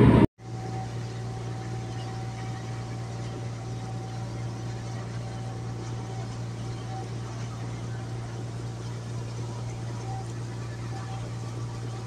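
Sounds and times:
loud rushing noise: 0:00.0 - 0:00.3
faint high whine: 0:00.0 - 0:12.0
low machinery hum: 0:00.0 - 0:12.0.

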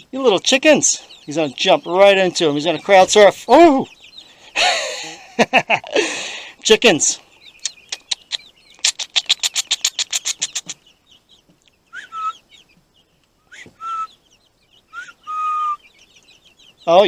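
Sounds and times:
chicks peeping softly: 0:00.0 - 0:17.0
loud rising chick calls: 0:00.0 - 0:17.0
sharp ticks: 0:07.6 - 0:10.8.

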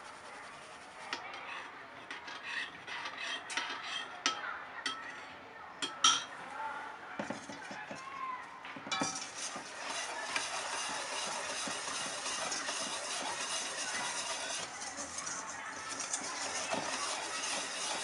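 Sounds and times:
whisking in a steel bowl: 0:00.0 - 0:04.0, 0:08.9 - 0:18.0
whisk clinking against steel bowl: 0:08.9 - 0:18.0.

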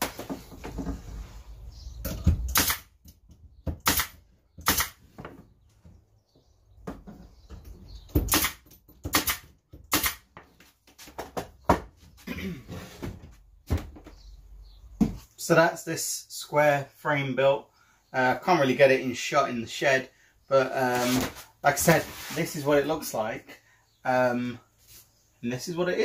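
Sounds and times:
nail gun shots into wood: 0:02.4 - 0:02.9, 0:03.7 - 0:05.0, 0:08.2 - 0:10.3.

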